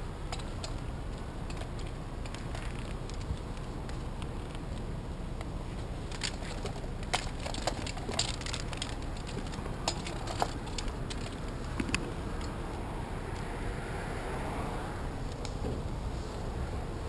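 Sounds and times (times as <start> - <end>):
low background rumble: 0.0 - 17.0
climbing hardware clicks: 0.3 - 5.5, 6.1 - 12.8.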